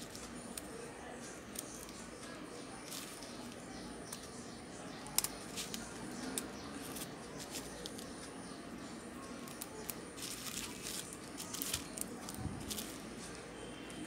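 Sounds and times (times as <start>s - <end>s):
handling rustle: 2.8s - 4.3s, 5.2s - 8.4s, 9.4s - 13.4s
rubber bands snapping: 5.0s - 7.1s.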